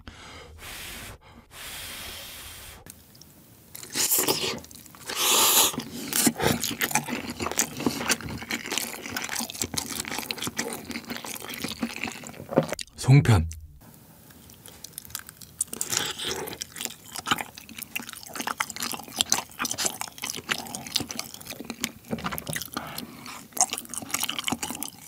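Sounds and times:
wet chewing: 3.1 - 13.6, 14.3 - 25.0
slurping noodles: 3.8 - 12.6.

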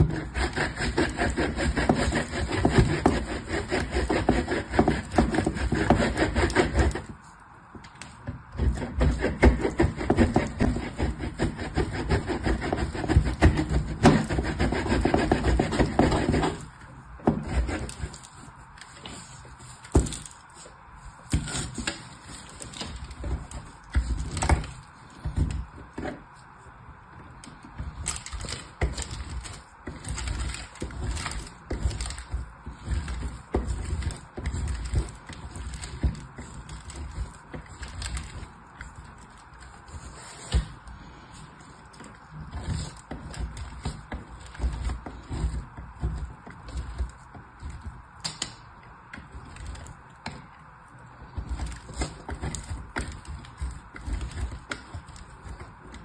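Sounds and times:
soap grated on metal grater: 0.0 - 7.2, 8.6 - 16.6, 17.3 - 18.3, 27.9 - 39.6, 42.5 - 47.8, 51.4 - 56.0.

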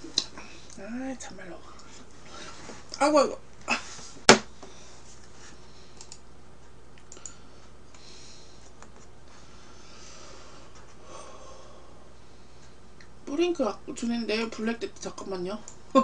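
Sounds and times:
steady low hum: 0.0 - 16.0
soft breaths: 3.7 - 6.2, 7.1 - 13.0
faint clicks: 6.0 - 6.2, 7.0 - 8.0.

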